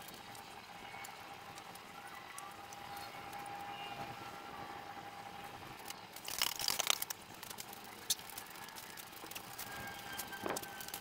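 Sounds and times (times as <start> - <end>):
plastic sack crinkling: 6.2 - 11.0.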